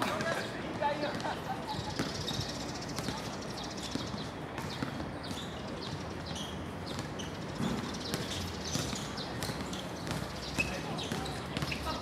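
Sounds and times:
basketball bouncing: 0:03.0 - 0:05.1, 0:06.9 - 0:12.0.

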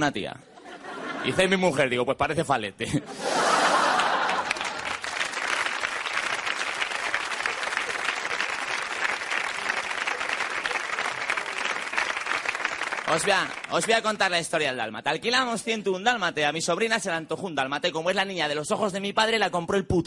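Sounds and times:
audience applauding: 0:03.3 - 0:14.3.

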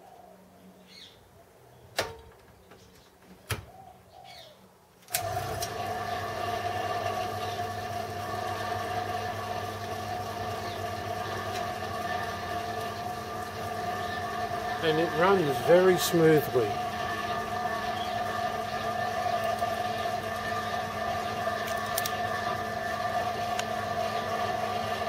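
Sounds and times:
milling machine motor humming: 0:05.1 - 0:25.0.

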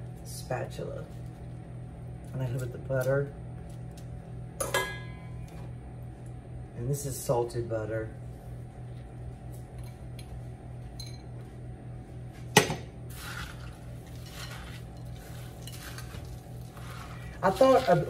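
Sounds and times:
low steady hum: 0:00.0 - 0:18.0
spatula scraping glass bowl: 0:13.1 - 0:18.0.

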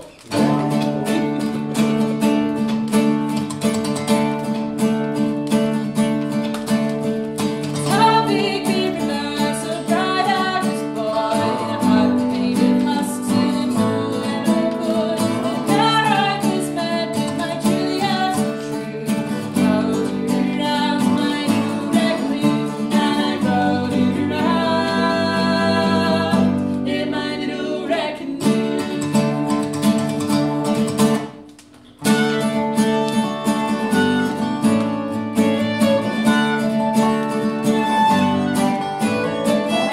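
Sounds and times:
acoustic guitar: 0:00.0 - 0:39.9
dobro: 0:00.0 - 0:39.9
woman singing: 0:07.7 - 0:29.5
fiddle: 0:32.0 - 0:39.9.

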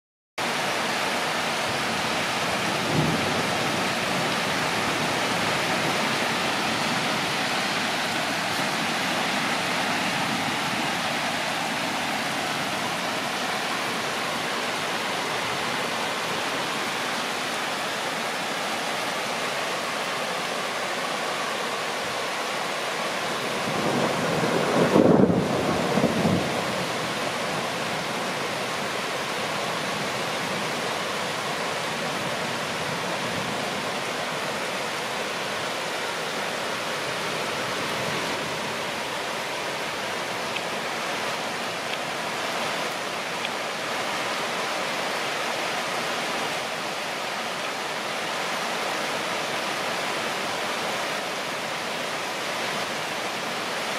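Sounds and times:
steady rain falling: 0:00.4 - 0:53.9
thunder rumbling: 0:23.6 - 0:27.0.

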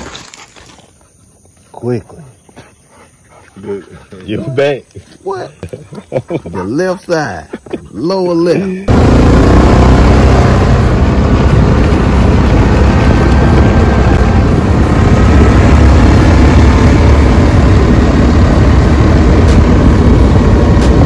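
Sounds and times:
atv engine running: 0:08.1 - 0:21.0
wind noise on microphone: 0:10.5 - 0:21.0.

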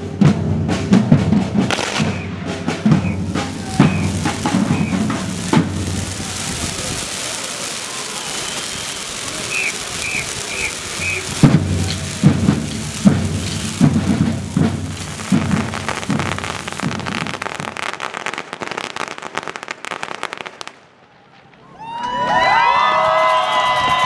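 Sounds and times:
spark fountains hissing and crackling: 0:03.0 - 0:18.6.

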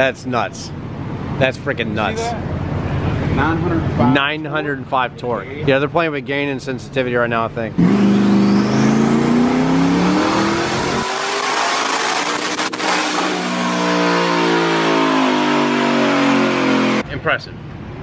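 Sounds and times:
car engine revving at full throttle: 0:07.8 - 0:17.0.

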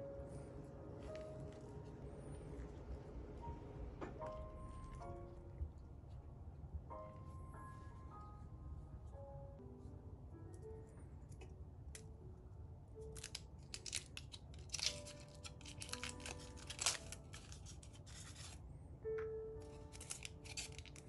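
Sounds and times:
soft background music: 0:00.0 - 0:21.0
foil wrapper crinkling: 0:13.1 - 0:18.6, 0:19.6 - 0:21.0.

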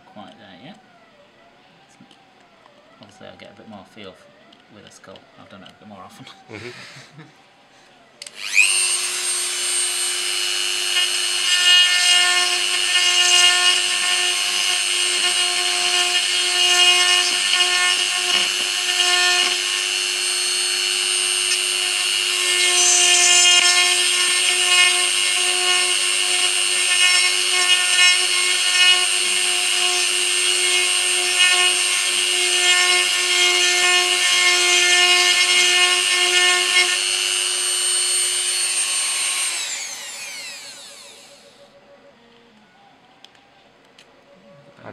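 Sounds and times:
rotary tool whining: 0:00.0 - 0:44.1.

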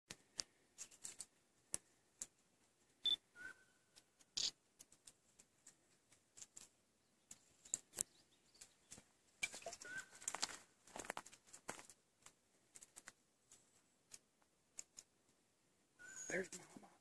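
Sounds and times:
low whistle: 0:03.4 - 0:03.7, 0:16.0 - 0:16.4
faint clicks: 0:03.9 - 0:10.6, 0:11.2 - 0:15.1
high bird chirp: 0:09.8 - 0:10.2, 0:16.0 - 0:16.5.

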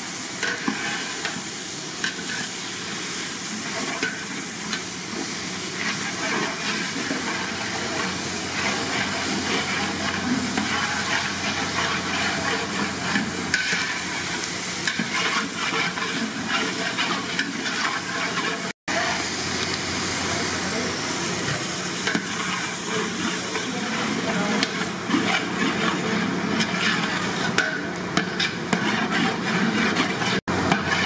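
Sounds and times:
vegetables sizzling in oil: 0:00.0 - 0:31.0
metal ladle scraping pot: 0:06.1 - 0:18.7, 0:22.0 - 0:31.0.

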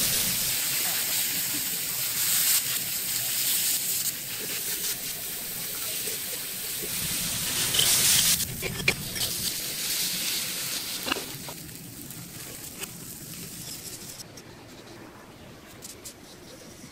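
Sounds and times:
chicken sizzling on a griddle: 0:00.0 - 0:14.2
sharp crackles: 0:00.0 - 0:14.2.

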